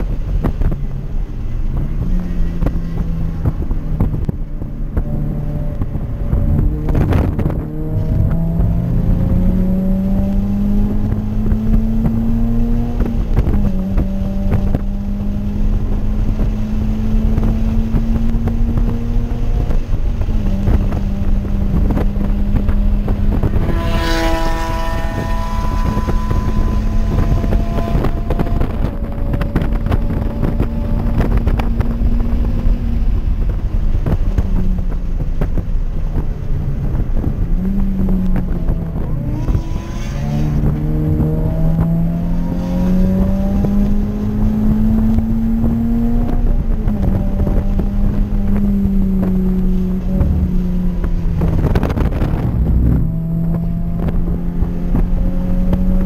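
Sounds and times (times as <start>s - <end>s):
car engine accelerating: 0.0s - 56.0s
wind noise: 0.0s - 56.0s.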